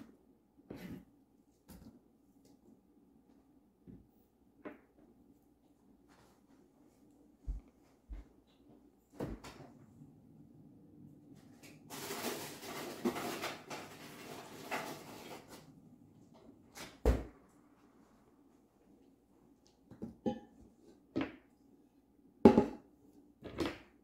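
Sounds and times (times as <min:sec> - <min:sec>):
knocks in a kitchen: 0:22.4 - 0:22.9.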